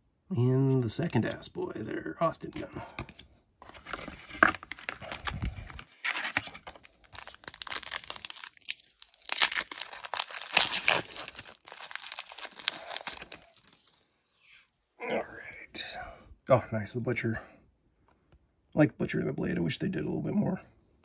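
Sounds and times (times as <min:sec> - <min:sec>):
foil wrapper crinkling and tearing: 0:04.5 - 0:14.0.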